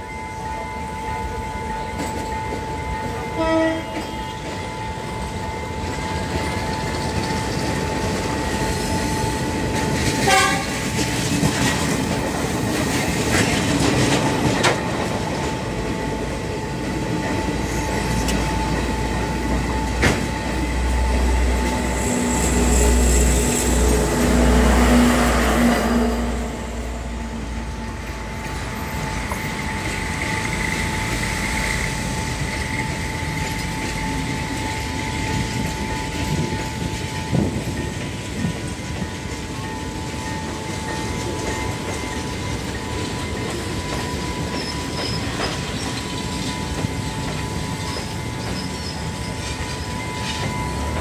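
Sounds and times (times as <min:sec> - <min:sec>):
train horn blasts: 0:00.0 - 0:06.9, 0:08.0 - 0:11.2, 0:17.5 - 0:28.1
train wheels clattering on rails: 0:01.7 - 0:51.0.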